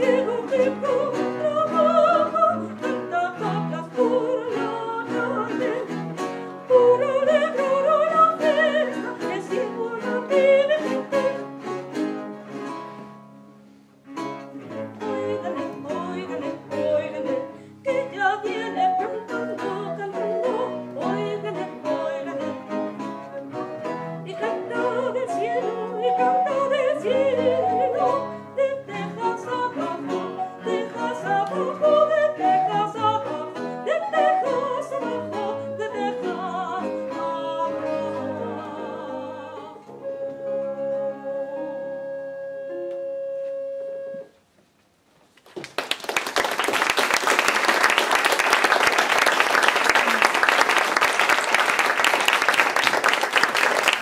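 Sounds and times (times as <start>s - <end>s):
woman singing: 0.0s - 6.0s, 6.7s - 11.4s, 14.7s - 23.0s, 24.2s - 40.0s
baroque ensemble playing: 0.0s - 44.3s
audience applauding: 45.4s - 54.0s.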